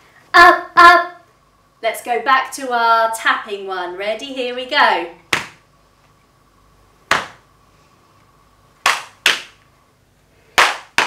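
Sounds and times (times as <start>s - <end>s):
sharp hand slaps: 5.3s - 5.6s, 7.1s - 7.4s, 8.8s - 9.6s, 10.6s - 11.0s.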